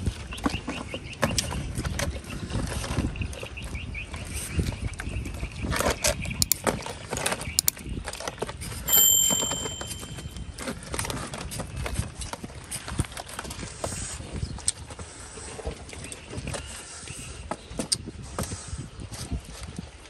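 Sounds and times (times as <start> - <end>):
clear high ringing tone: 8.9 - 10.6.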